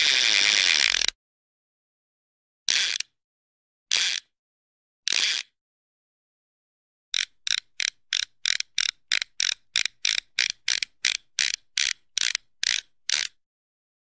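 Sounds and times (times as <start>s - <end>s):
rasping clicks: 0.0s - 1.2s, 7.2s - 13.4s.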